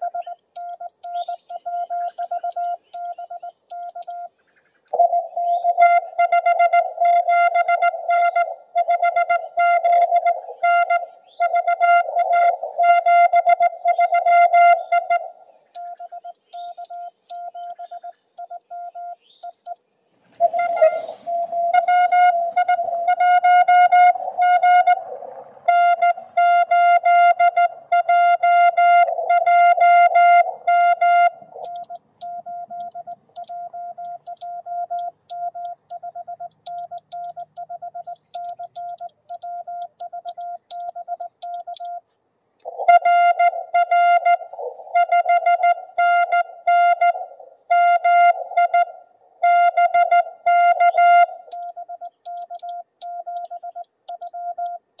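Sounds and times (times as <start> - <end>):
morse code beeps: 0.0 - 4.3, 15.8 - 19.8, 25.9 - 42.0, 43.2 - 55.0.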